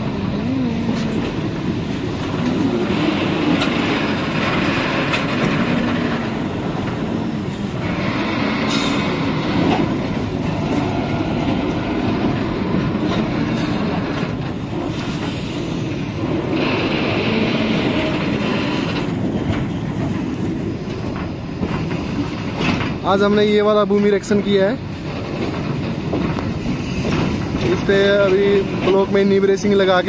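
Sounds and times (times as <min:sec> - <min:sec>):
engine hum: 0:00.0 - 0:21.6
wheels running on rails: 0:00.0 - 0:30.0.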